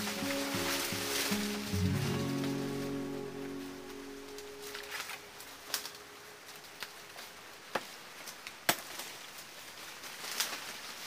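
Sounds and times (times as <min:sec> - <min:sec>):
machete chopping branches: 0:08.6 - 0:09.2.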